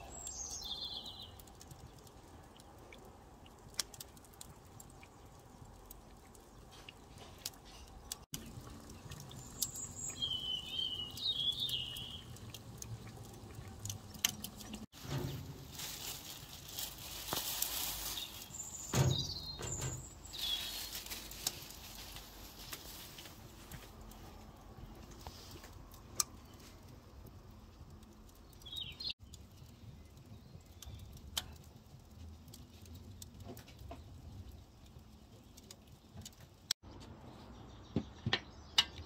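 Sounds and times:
birds chirping: 0.0s - 2.8s, 6.3s - 13.8s, 18.0s - 21.0s, 28.4s - 31.6s.

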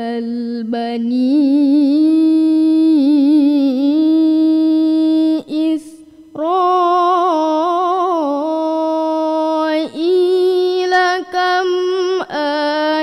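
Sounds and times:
girl reciting melodically: 0.0s - 13.0s.

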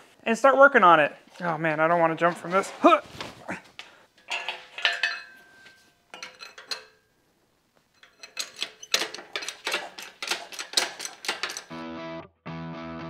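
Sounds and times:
metal clinking and clattering: 4.2s - 7.1s, 7.9s - 11.7s.

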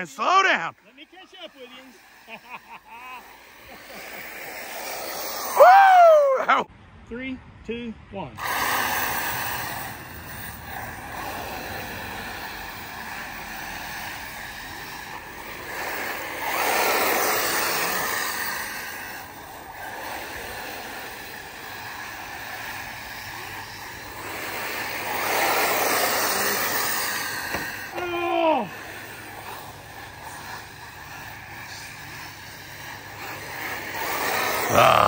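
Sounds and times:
rc car motor whine: 0.0s - 6.4s, 8.4s - 35.0s.

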